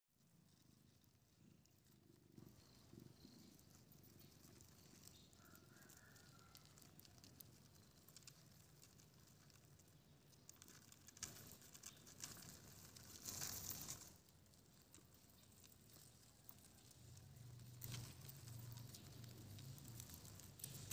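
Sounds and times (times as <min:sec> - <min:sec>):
crickets rustling on leaves: 0:04.5 - 0:09.8, 0:10.5 - 0:14.3.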